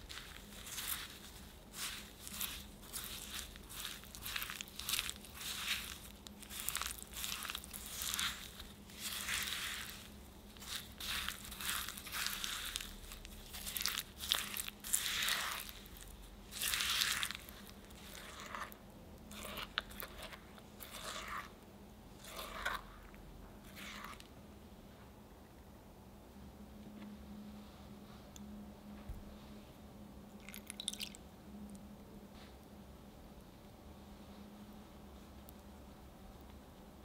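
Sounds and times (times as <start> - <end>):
spatula scraping sugar in glass bowl: 0.0 - 21.5, 22.2 - 24.3.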